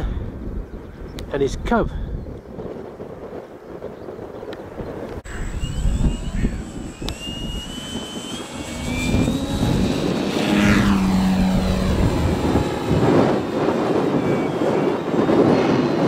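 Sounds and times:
wind rumbling on microphone: 0:00.0 - 0:16.0
model plane motor whine: 0:05.2 - 0:16.0.

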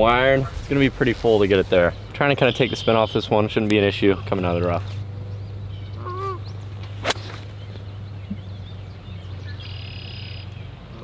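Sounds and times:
golf club striking ball: 0:06.9 - 0:07.8.

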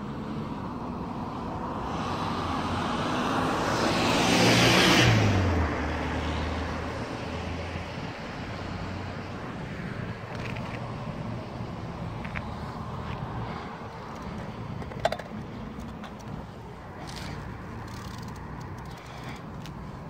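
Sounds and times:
car passing by: 0:01.4 - 0:14.8.

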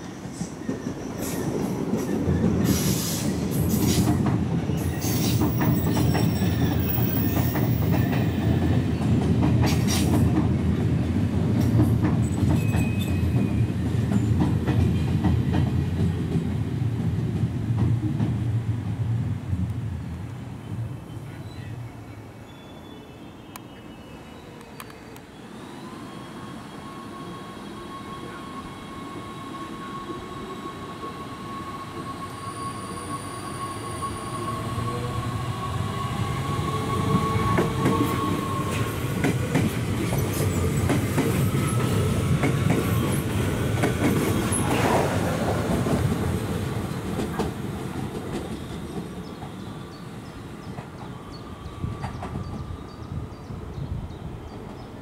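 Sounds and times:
electric train whine: 0:23.1 - 0:55.0.

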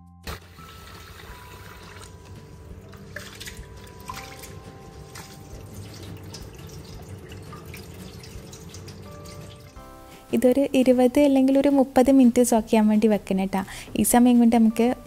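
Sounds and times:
water splashing and dripping: 0:00.2 - 0:09.9
tap water running into bowl: 0:00.3 - 0:09.9
water pouring from bowl: 0:00.3 - 0:10.0.

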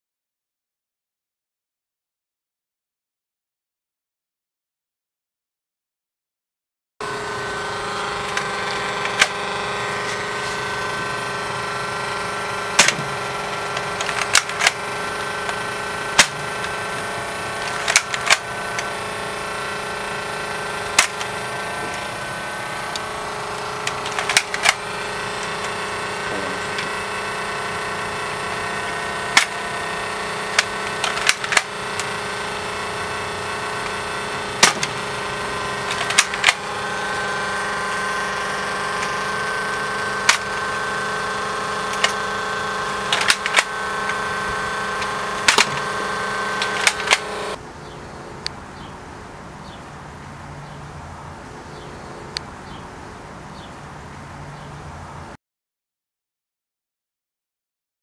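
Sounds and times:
mechanical hum with held tones: 0:07.0 - 0:55.4
sharp short clicks: 0:22.9 - 0:27.2, 0:39.0 - 0:47.6.

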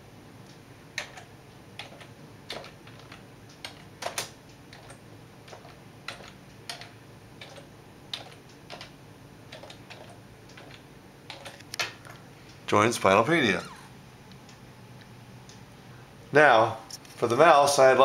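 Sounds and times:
computer keyboard keystrokes: 0:01.0 - 0:12.1.

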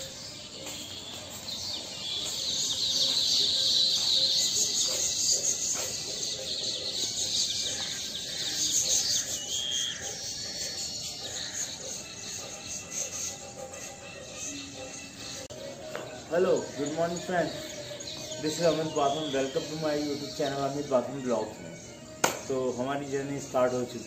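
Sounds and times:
birds chirping in chorus: 0:00.0 - 0:24.0.

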